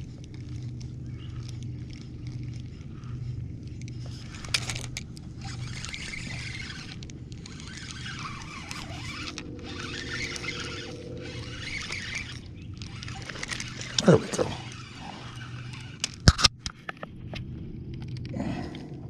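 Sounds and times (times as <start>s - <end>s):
fishing reel whirring: 0.0s - 16.3s
low hum: 0.0s - 19.0s
sharp reel click: 3.8s - 16.6s.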